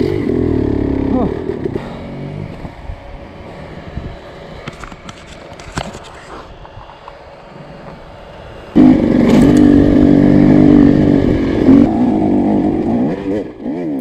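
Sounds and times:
dirt bike engine revving: 0:00.0 - 0:04.7, 0:08.6 - 0:14.0.

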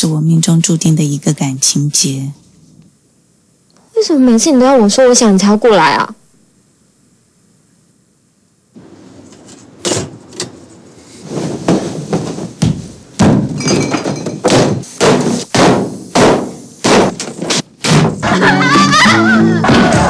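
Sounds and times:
objects crashing and banging: 0:11.3 - 0:18.3
glass breaking: 0:13.5 - 0:14.8.

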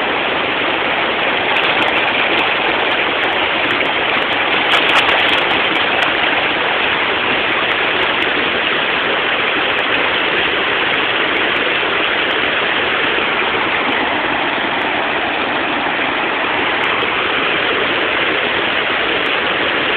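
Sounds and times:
steady rushing noise: 0:00.0 - 0:19.9.

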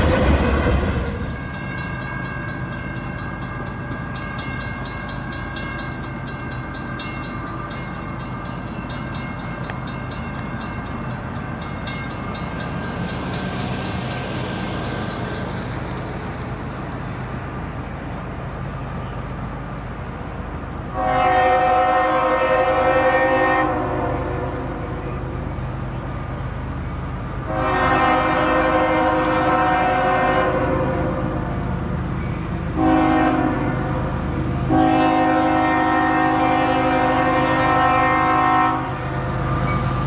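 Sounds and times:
train rumbling: 0:00.0 - 0:40.0
crossing bells ringing: 0:00.8 - 0:19.4.

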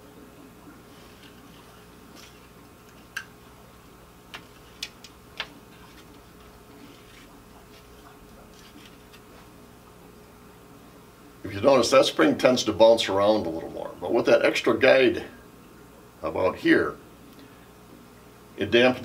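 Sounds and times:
faint room hum: 0:00.0 - 0:19.0.

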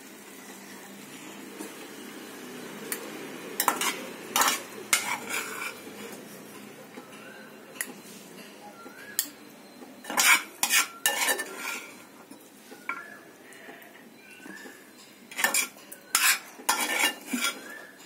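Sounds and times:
metal spoon scraping a pan: 0:02.9 - 0:09.4, 0:10.0 - 0:13.1, 0:14.3 - 0:18.0
spoon clinking on pan and bowl: 0:02.9 - 0:13.1, 0:14.1 - 0:18.0.

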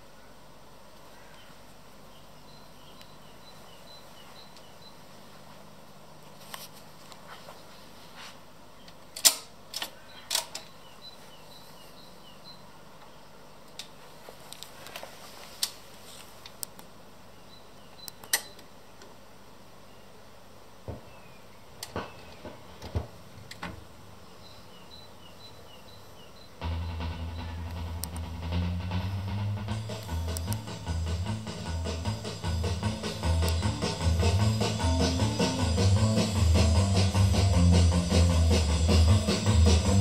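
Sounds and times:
faint low hum: 0:00.0 - 0:40.0
turntable mechanism clicking: 0:26.6 - 0:28.7, 0:29.9 - 0:30.9, 0:33.2 - 0:34.0.

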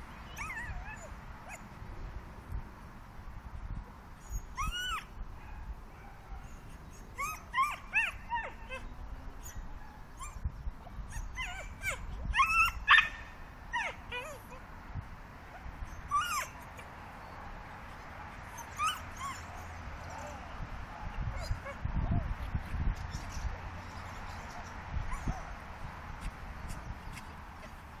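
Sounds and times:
dog whining and yipping: 0:00.3 - 0:01.6, 0:04.2 - 0:05.1, 0:06.9 - 0:09.6, 0:10.2 - 0:14.6, 0:15.6 - 0:16.9, 0:18.4 - 0:20.4, 0:21.2 - 0:22.3, 0:23.2 - 0:25.5.

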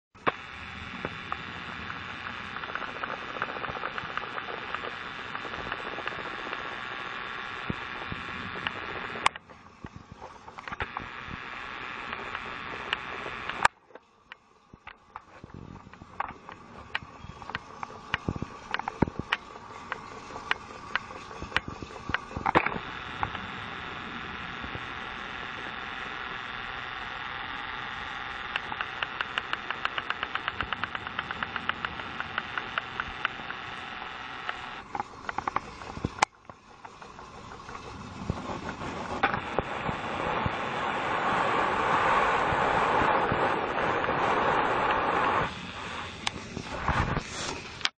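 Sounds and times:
toy train whirring: 0:15.9 - 0:46.8.

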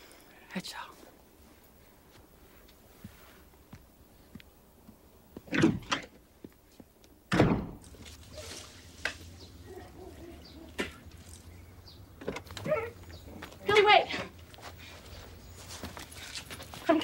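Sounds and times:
door slamming shut: 0:07.3 - 0:07.8.

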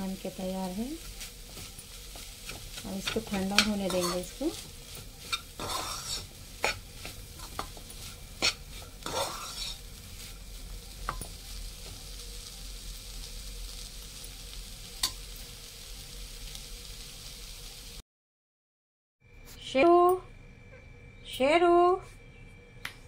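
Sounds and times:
meat sizzling in pan: 0:00.0 - 0:18.0
spoon scraping in pan: 0:01.0 - 0:10.4
spoon clanking against pan: 0:02.5 - 0:04.3, 0:05.2 - 0:09.8, 0:15.0 - 0:15.2.

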